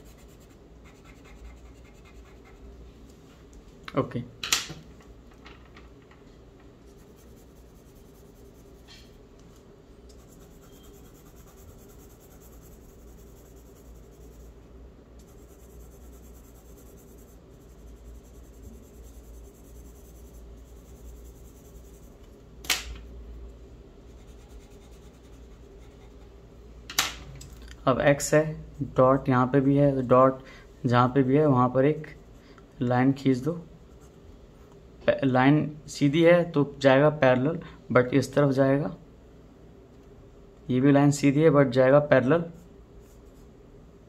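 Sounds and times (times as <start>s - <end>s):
charcoal pencil scratching on paper: 0.0s - 2.7s, 6.9s - 9.2s, 10.1s - 14.6s, 15.2s - 22.2s, 24.1s - 26.3s, 42.5s - 43.5s
steady low hum: 0.0s - 44.0s.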